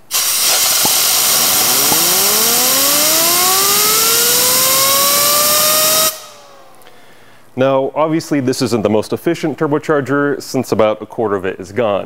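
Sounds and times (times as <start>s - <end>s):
compressed air hissing: 0.0s - 3.1s
turbine wheel whine: 0.6s - 6.9s.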